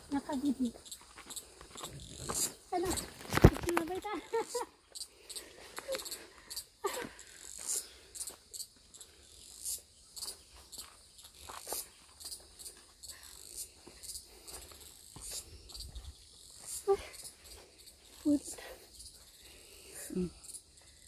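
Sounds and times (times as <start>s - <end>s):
insects chirping: 0.0s - 21.0s.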